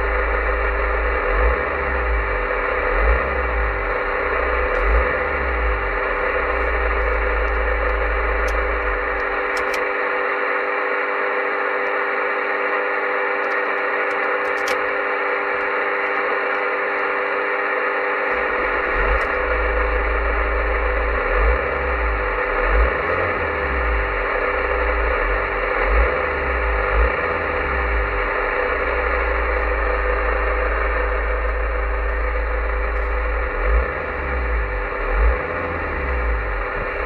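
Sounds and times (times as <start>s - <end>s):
low rumble: 0.0s - 9.9s, 18.3s - 37.0s
radio static hiss: 0.0s - 37.0s.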